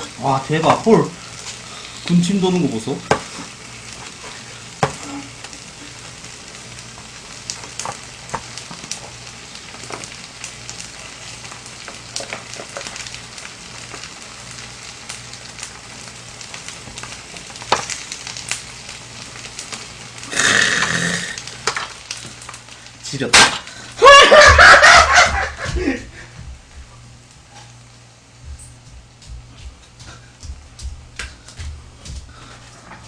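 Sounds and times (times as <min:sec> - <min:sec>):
food sizzling in a pot: 0:00.0 - 0:26.3.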